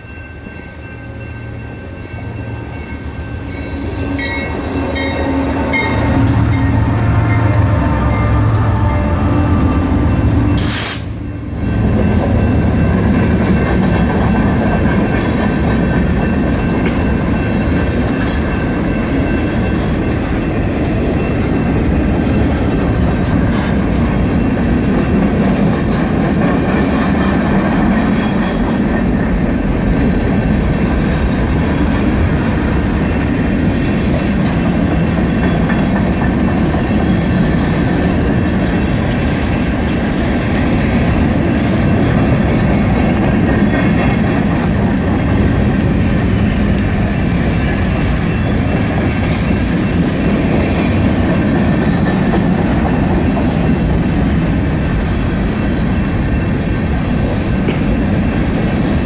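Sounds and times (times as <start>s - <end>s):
crossing signal bell ringing: 0.0s - 25.6s, 32.2s - 51.3s
locomotive engines droning: 0.0s - 59.0s
wheels rumbling on rail: 0.0s - 59.0s.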